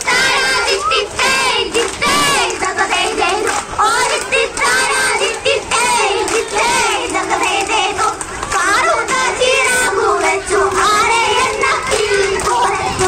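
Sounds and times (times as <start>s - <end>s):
children singing in chorus: 0.0s - 13.0s.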